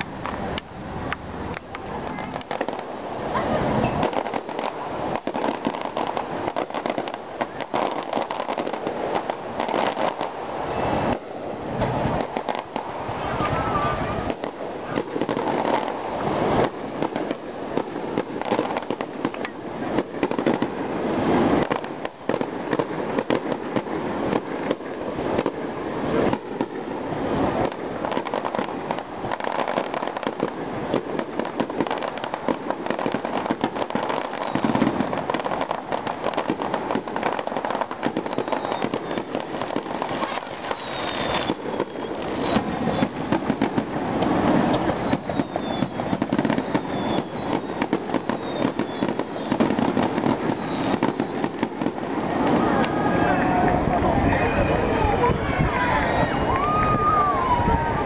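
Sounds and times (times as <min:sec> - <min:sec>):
firework shell bursts and crackling: 0:00.0 - 0:53.1
falling firework whistles: 0:26.2 - 0:53.6, 0:54.2 - 0:58.0.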